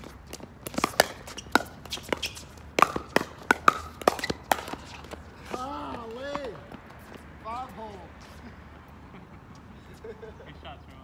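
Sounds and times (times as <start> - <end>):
ball bouncing on hard court: 0.0 - 7.2
paddles striking plastic ball: 0.6 - 5.2.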